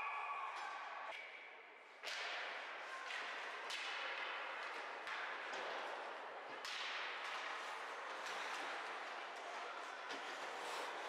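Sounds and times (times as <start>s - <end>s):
hockey sticks striking puck: 2.0s - 11.0s
skates scraping on ice: 7.3s - 11.0s.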